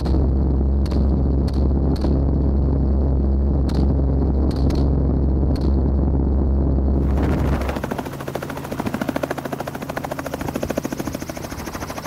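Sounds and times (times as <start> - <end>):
helicopter cabin drone: 0.0 - 12.0
helicopter rotor chopping: 7.0 - 12.0.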